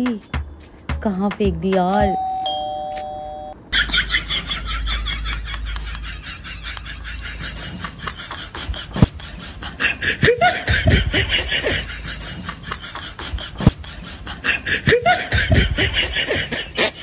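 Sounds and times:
snickering laughter: 3.8s - 17.0s.

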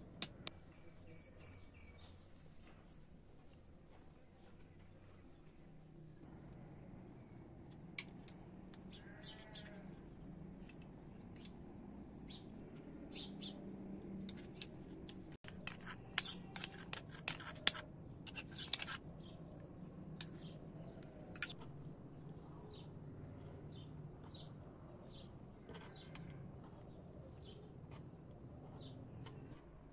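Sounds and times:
metal spoon scraping a mortar: 14.2s - 19.3s, 21.3s - 21.6s.

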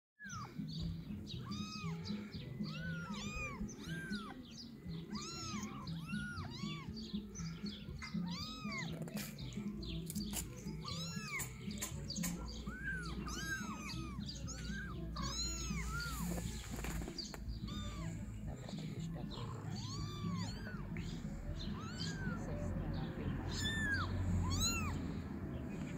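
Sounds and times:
kittens mewing: 0.2s - 25.9s
sharp clicks: 11.2s - 12.5s.

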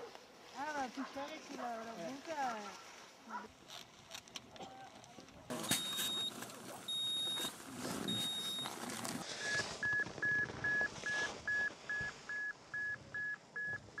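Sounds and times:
quick short lower beeps: 5.7s - 6.3s, 8.1s - 8.7s
long high-pitched beeps: 5.7s - 7.5s, 8.1s - 8.7s.

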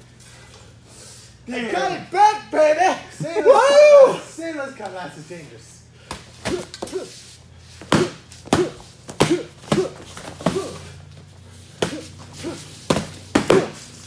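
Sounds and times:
foam swords smacking: 7.8s - 10.9s, 11.8s - 14.0s.

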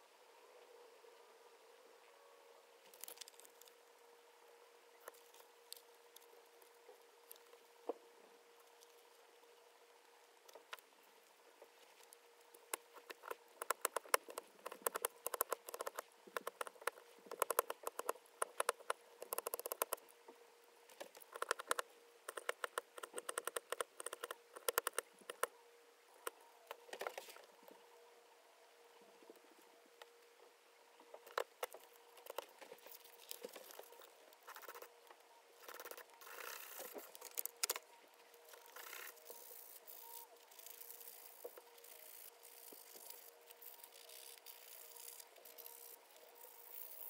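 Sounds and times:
knife carving wood: 12.7s - 20.0s, 21.0s - 25.4s.

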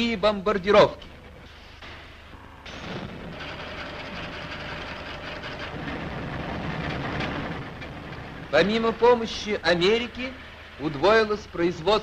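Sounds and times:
faint steady hum: 0.0s - 12.0s
rapid mechanical clatter: 2.7s - 12.0s.

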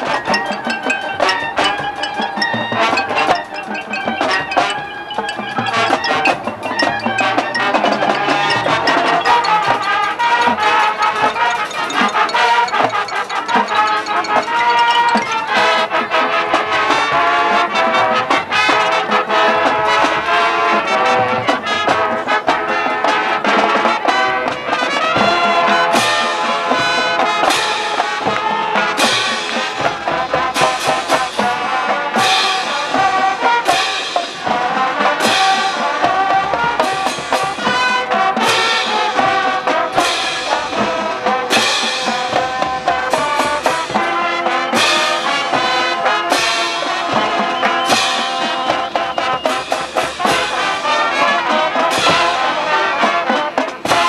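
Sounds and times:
drums and percussion: 0.0s - 54.0s
marching band brass: 0.0s - 54.0s.

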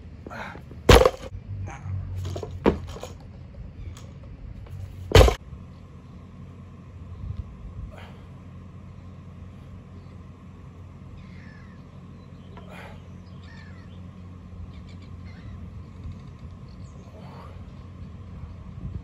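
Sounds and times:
steady low hum: 0.0s - 19.0s
birds chirping: 8.0s - 18.8s.

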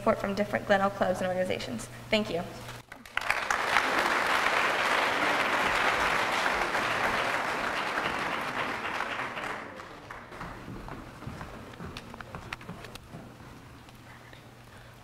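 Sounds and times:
audience applauding: 2.9s - 13.0s.

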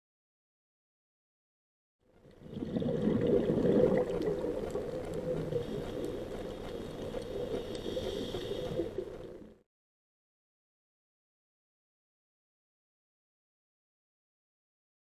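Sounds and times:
underwater bubbling and gurgling: 2.1s - 9.6s.

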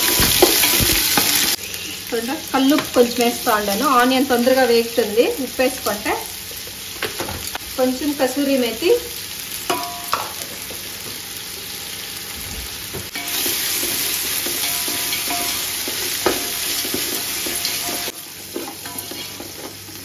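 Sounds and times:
onions sizzling in oil: 0.0s - 20.0s.

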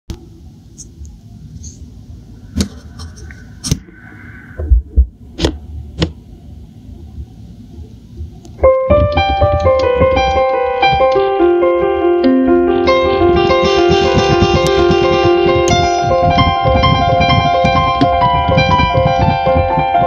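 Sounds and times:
digital keyboard piano chords: 8.6s - 20.0s
knocks and thumps: 13.5s - 20.0s.

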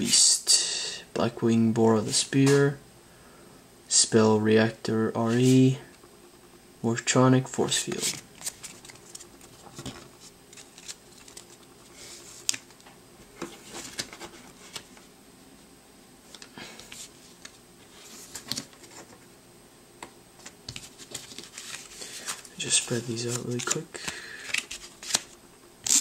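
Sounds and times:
cards clicking and rustling: 7.9s - 11.7s, 20.4s - 26.0s.

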